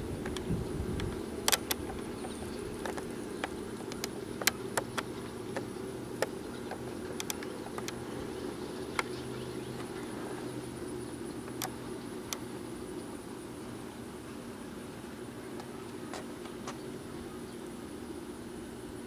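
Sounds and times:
sharp clicks: 0.2s - 8.0s, 11.4s - 12.4s.

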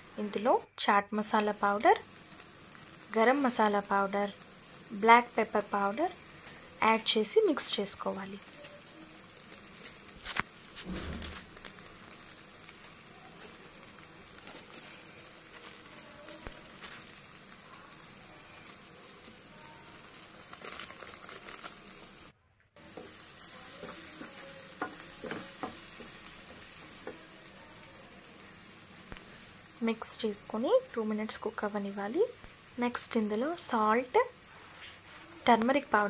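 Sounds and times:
vegetables sizzling in hot oil: 0.0s - 36.0s
wooden spatula scraping and stirring: 22.8s - 27.3s.

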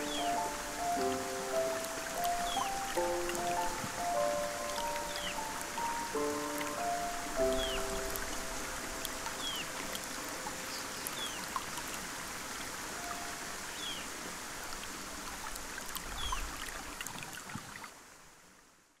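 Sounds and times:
bird chirping: 0.0s - 8.6s, 9.3s - 9.8s
stream rushing over rocks: 0.0s - 18.8s.

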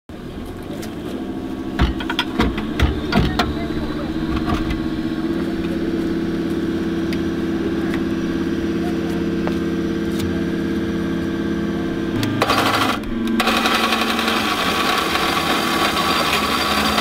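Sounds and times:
vehicle engine idling: 0.1s - 17.0s
metal clanks and knocks: 1.7s - 4.9s.

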